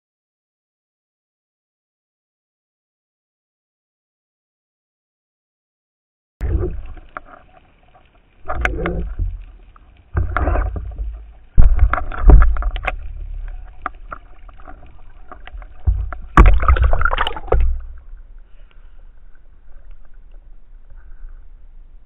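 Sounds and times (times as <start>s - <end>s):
water rushing against camera: 6.4s - 21.8s.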